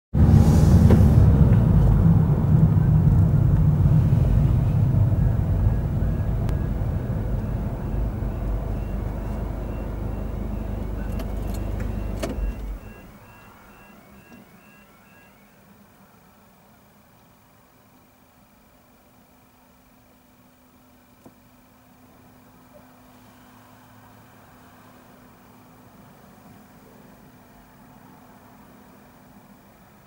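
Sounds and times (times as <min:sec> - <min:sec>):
car engine and tyre rumble: 0:00.1 - 0:19.0
level crossing alarm beeping: 0:05.6 - 0:15.6.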